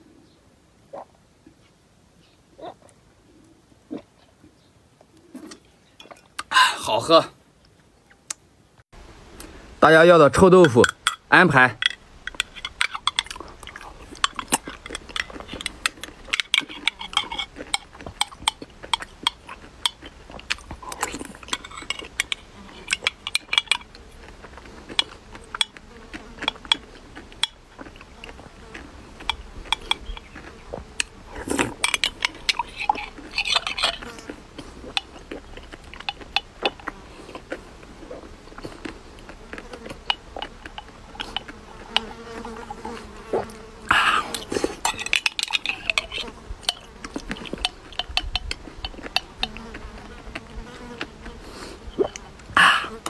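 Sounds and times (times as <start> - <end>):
spoon scraping glass jar: 11.8 - 20.0, 20.9 - 24.0, 29.2 - 30.3, 31.6 - 34.3, 44.3 - 49.7
chewing and lip-smacking: 12.2 - 53.0.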